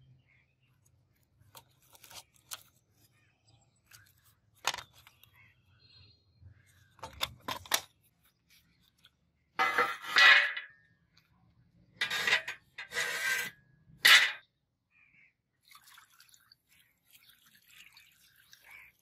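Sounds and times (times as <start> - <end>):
steel blade scraping metal tray: 9.6 - 10.7, 12.0 - 14.4
trickle of liquid: 15.5 - 19.0.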